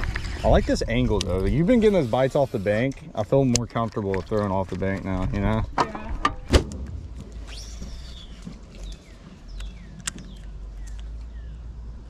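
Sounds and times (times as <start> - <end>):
fishing reel spool whirring: 0.0 - 0.7
birds chirping: 7.2 - 12.0
sharp clicks: 9.5 - 11.3.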